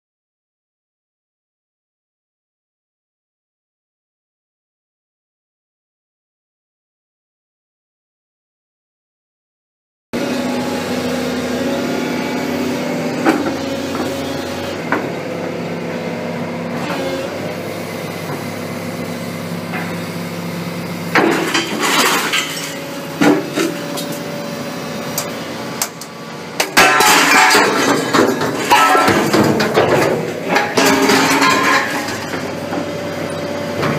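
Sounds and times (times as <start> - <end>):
machine engine and hydraulics: 10.2 - 33.9
metal clanking and scraping: 21.1 - 24.2, 26.6 - 32.9.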